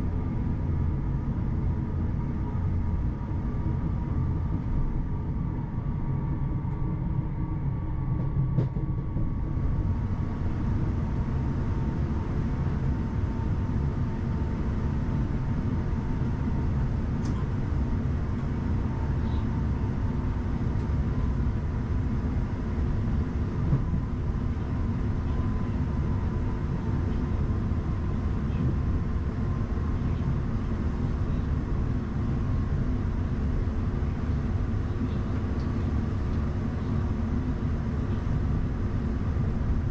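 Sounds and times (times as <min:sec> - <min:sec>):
train wheels rumbling on track: 0:08.1 - 0:39.9.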